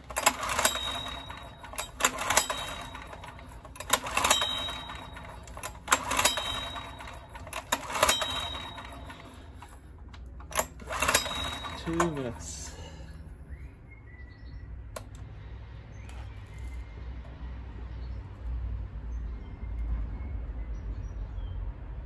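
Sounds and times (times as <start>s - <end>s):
generator pull-starter whirring: 0.0s - 13.2s, 14.9s - 15.3s.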